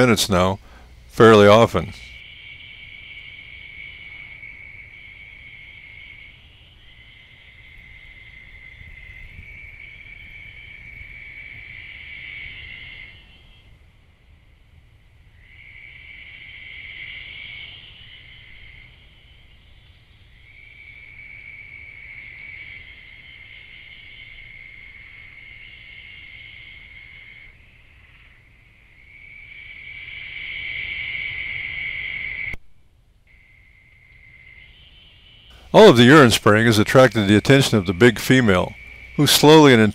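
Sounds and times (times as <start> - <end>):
insects trilling: 0.0 - 32.6, 33.3 - 39.9.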